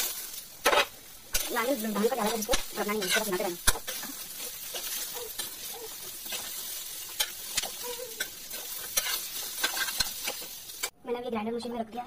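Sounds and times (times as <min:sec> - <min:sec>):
food sizzling in a pan: 0:00.0 - 0:11.0
ladle clinking and scraping pan: 0:02.2 - 0:10.9.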